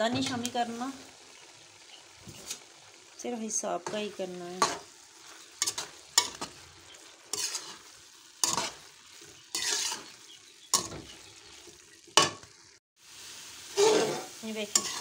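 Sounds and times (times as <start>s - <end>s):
faint oil sizzle: 0.0s - 15.0s
metal spoon scraping pot: 7.3s - 7.8s, 9.5s - 10.2s.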